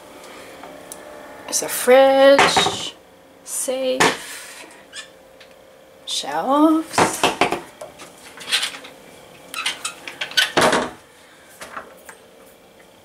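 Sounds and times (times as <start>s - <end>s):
cupboard doors clicking and clattering: 9.7s - 11.0s.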